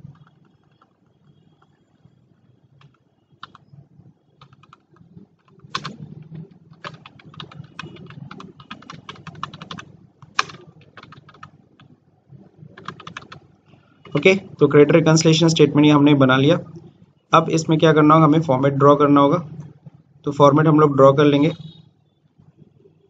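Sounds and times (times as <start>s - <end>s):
typing on computer keyboard: 0.0s - 1.9s, 2.8s - 3.7s, 4.4s - 12.0s, 12.7s - 14.3s.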